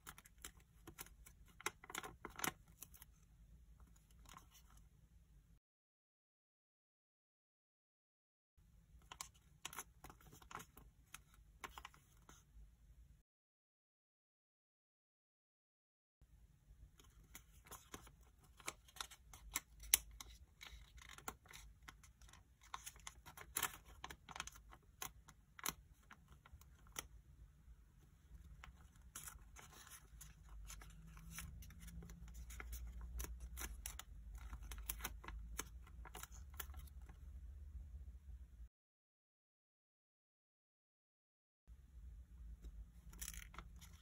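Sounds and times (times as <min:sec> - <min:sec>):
paper crinkling as folded: 0:17.0 - 0:27.1, 0:28.3 - 0:37.1, 0:43.0 - 0:44.0.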